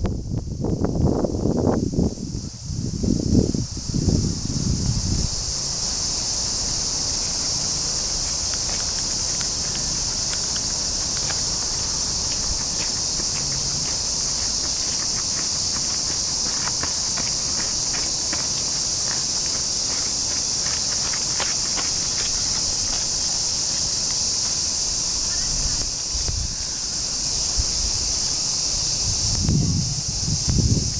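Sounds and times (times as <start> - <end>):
cicadas singing: 0.0 - 30.9.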